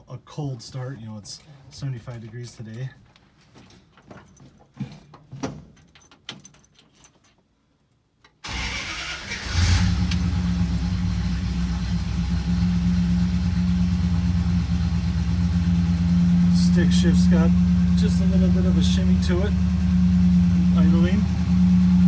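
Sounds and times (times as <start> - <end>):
engine cranking and idling: 8.4 - 22.0.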